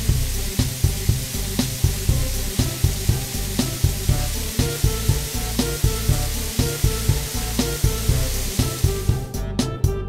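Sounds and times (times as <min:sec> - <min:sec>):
water spray hiss: 0:00.0 - 0:09.4
background music with steady beat: 0:00.0 - 0:10.0.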